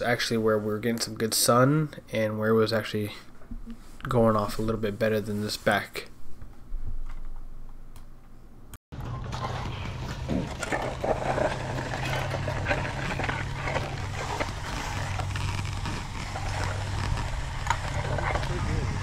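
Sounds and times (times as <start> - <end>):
steady low hum: 3.1 - 19.0
concrete float scraping: 9.2 - 19.0.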